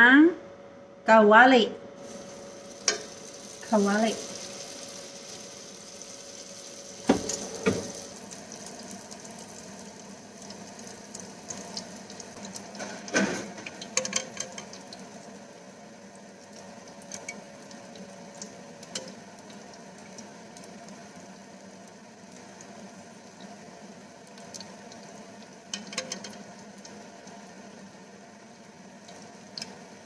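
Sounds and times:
deep-frying sizzle and pops: 0:02.0 - 0:30.0
knocks: 0:07.1 - 0:08.0.

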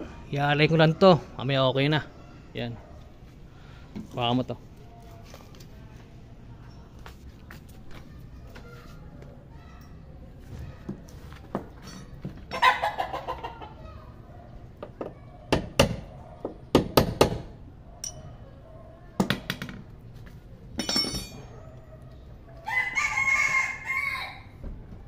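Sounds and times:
rooster crowing: 0:22.6 - 0:24.6.

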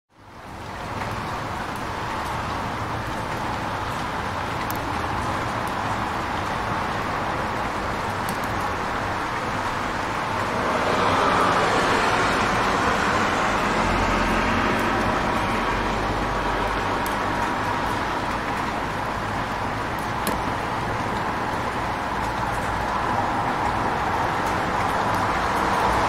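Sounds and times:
steady traffic noise: 0:00.1 - 0:26.0
vehicle swishing on wet road: 0:00.8 - 0:26.0.

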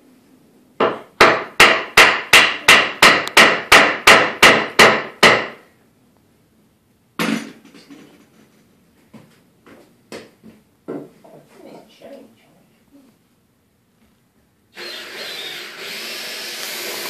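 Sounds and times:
hammer striking wood: 0:00.8 - 0:05.6.

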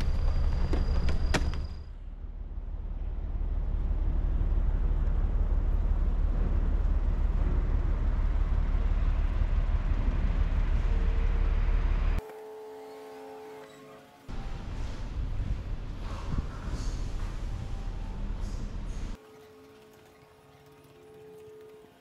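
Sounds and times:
low rumbling noise: 0:00.0 - 0:12.2, 0:14.3 - 0:19.2.

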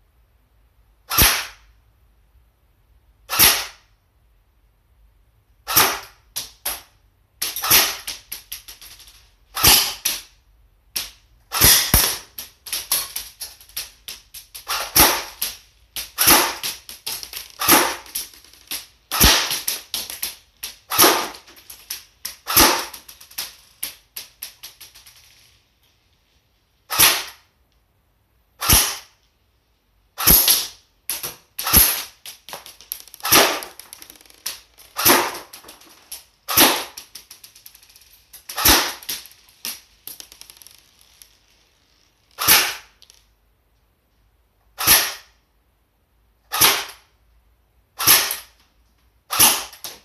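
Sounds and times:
airsoft gun snapping shots: 0:01.1 - 0:01.6, 0:03.3 - 0:03.8, 0:05.7 - 0:06.8, 0:07.4 - 0:08.3, 0:09.6 - 0:10.3, 0:11.0 - 0:13.2, 0:14.6 - 0:18.2, 0:19.1 - 0:20.2, 0:20.9 - 0:21.5, 0:22.3 - 0:23.1, 0:26.9 - 0:27.4, 0:28.6 - 0:29.1, 0:30.2 - 0:35.6, 0:36.5 - 0:37.2, 0:38.4 - 0:39.3, 0:42.4 - 0:43.0, 0:44.8 - 0:45.3, 0:46.5 - 0:47.0, 0:48.0 - 0:48.5, 0:49.3 - 0:49.9.

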